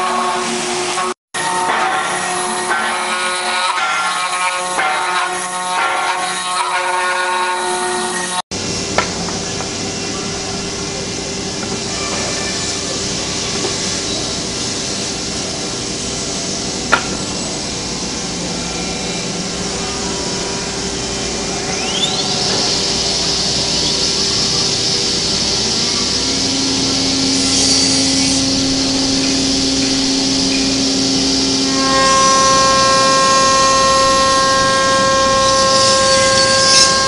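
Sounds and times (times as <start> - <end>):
router spindle whining: 7.3 - 37.0
hiss of wood cutting: 9.7 - 37.0.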